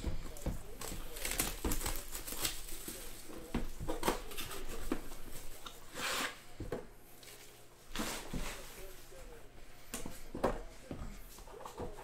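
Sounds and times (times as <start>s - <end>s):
plastic wrap crinkling and tearing: 0.8s - 6.3s.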